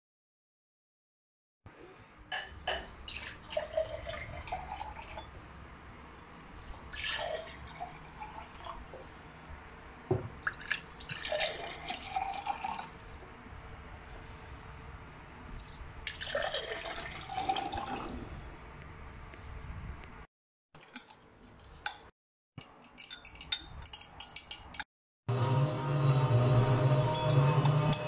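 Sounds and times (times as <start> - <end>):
water pouring into glasses: 3.0 - 5.3, 6.7 - 8.9, 10.4 - 12.9, 15.6 - 18.2.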